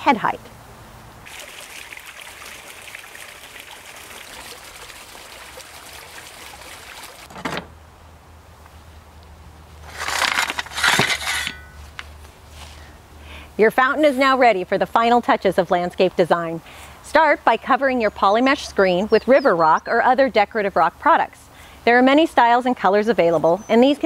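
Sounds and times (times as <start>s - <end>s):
water trickling over rocks: 1.2s - 7.3s
shovel scraping: 9.8s - 11.9s.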